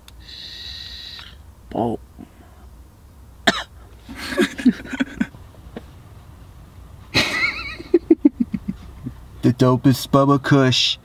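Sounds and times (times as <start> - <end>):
man coughing: 3.4 - 5.3.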